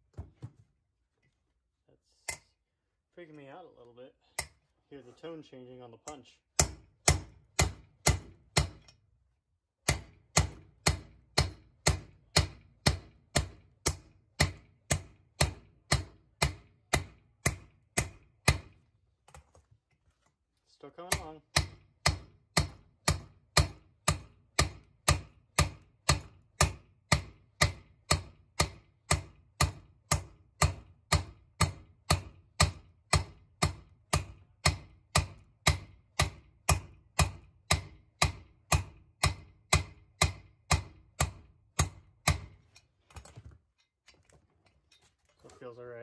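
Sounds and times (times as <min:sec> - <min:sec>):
hammer striking steel punch: 0:06.1 - 0:09.0, 0:09.8 - 0:18.8, 0:21.1 - 0:42.6.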